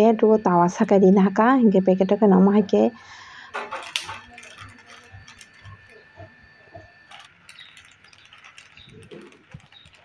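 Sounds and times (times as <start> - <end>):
plastic sheet crinkling: 3.5 - 10.0.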